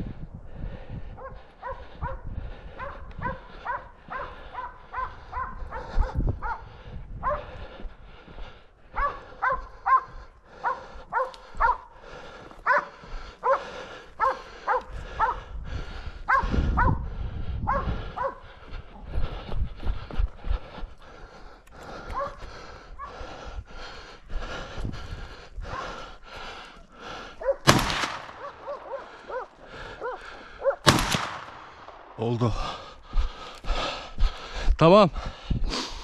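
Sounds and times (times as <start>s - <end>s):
dogs barking: 1.2s - 7.7s, 8.9s - 15.6s, 16.2s - 18.7s, 22.0s - 23.4s, 27.2s - 27.7s, 28.3s - 30.9s.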